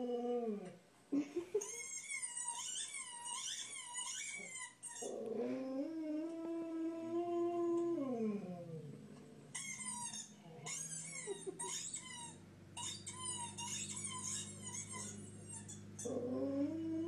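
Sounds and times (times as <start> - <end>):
high-pitched falling squeaks: 9.6 - 16.2
dog howling: 14.8 - 17.0.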